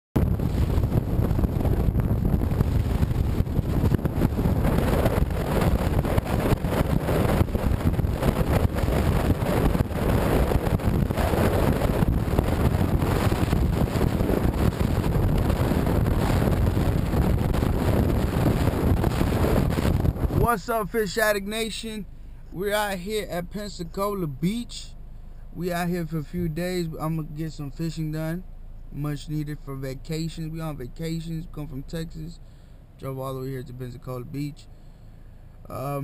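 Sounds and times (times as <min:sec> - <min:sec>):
wind buffeting microphone: 0:00.2 - 0:20.8
car road noise: 0:00.2 - 0:36.0.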